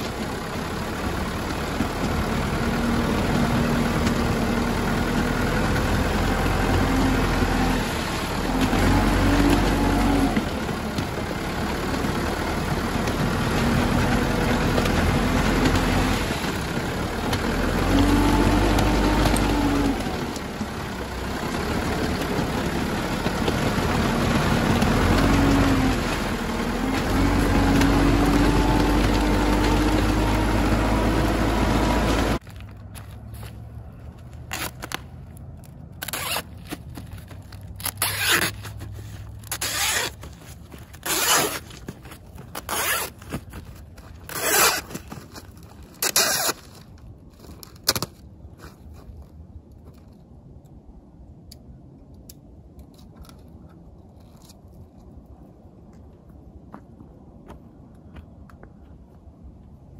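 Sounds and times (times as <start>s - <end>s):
loader engine running: 0.0s - 47.8s.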